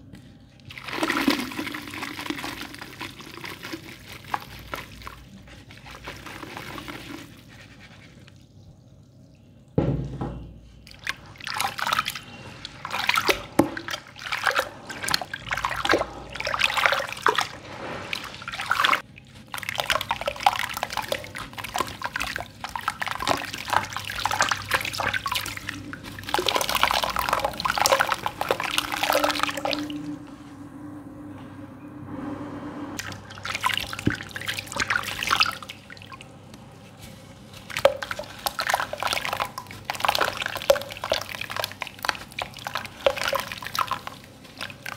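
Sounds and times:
grains splashing into water: 10.9 - 30.0, 37.6 - 44.9.

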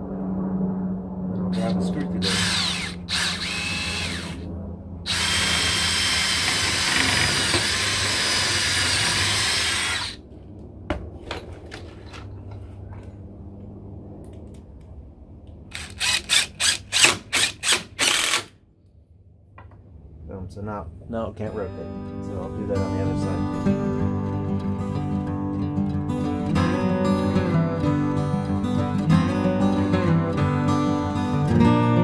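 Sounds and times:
cordless drill boring: 2.2 - 4.4, 5.1 - 10.2, 15.7 - 18.5
screw driver spurts: 15.7 - 18.5.

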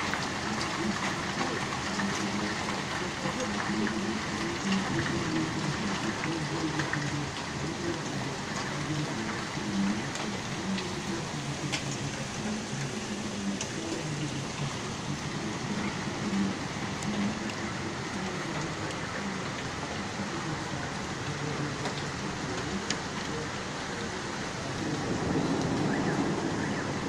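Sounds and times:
heavy rain falling: 0.0 - 27.0
raindrops ticking close by: 0.0 - 27.0.

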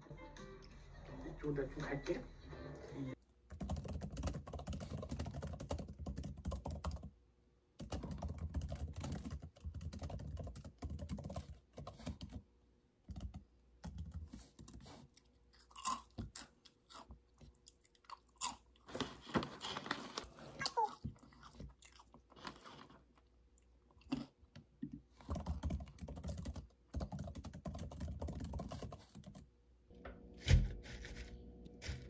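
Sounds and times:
laptop keyboard tapping: 3.5 - 7.1, 7.8 - 12.4, 13.1 - 14.8, 25.2 - 29.4
chewing: 15.0 - 19.0, 20.6 - 24.4.

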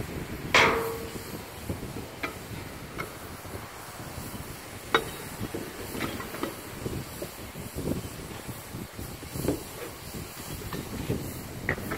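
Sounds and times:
metal latch and lid clanking: 0.6 - 1.4
sharp knock: 0.6 - 1.4.

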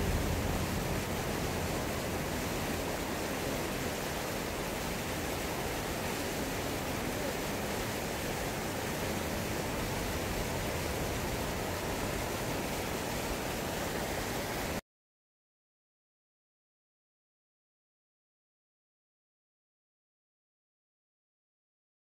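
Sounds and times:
stream rushing over rocks: 0.0 - 14.8.

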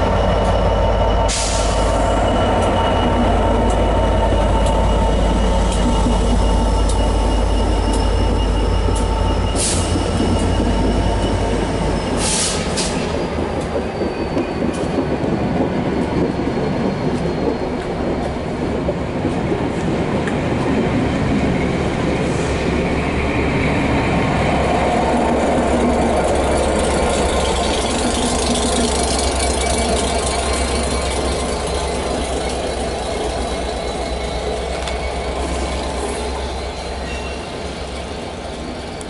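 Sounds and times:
low diesel engine drone: 0.0 - 13.0, 22.2 - 37.1
train wheels on rails: 0.0 - 39.0.

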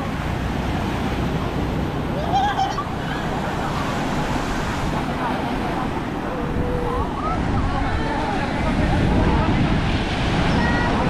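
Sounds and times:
surf breaking on sand: 0.0 - 11.0.

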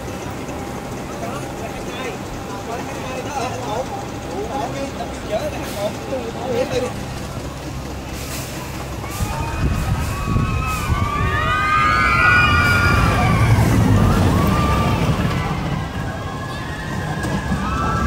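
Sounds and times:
roller coaster train rumbling: 0.0 - 18.0
riders screaming: 9.0 - 18.0.

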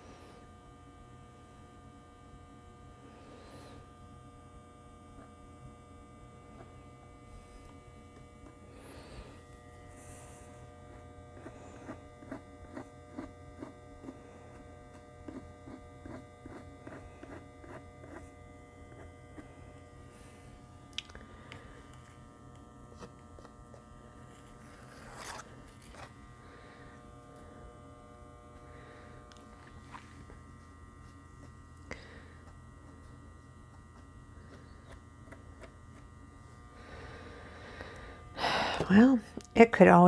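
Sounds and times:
electrical mains hum: 0.0 - 40.0.

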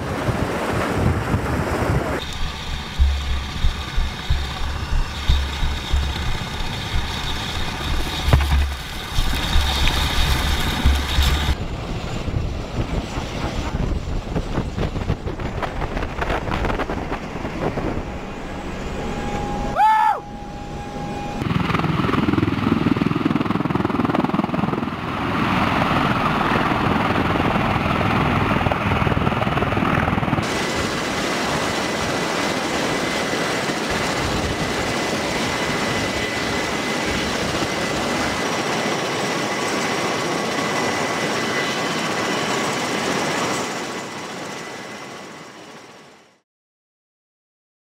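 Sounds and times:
aircraft engines and rotors: 0.0 - 46.4
brief rising whine: 2.2 - 11.6, 17.2 - 21.5
thin high whine: 2.2 - 11.6, 16.6 - 21.6.

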